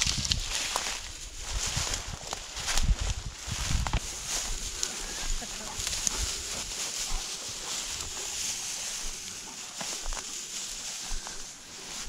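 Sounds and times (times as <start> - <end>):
wind on microphone: 0.0 - 7.2
dry grass swishing and rustling: 0.0 - 12.0.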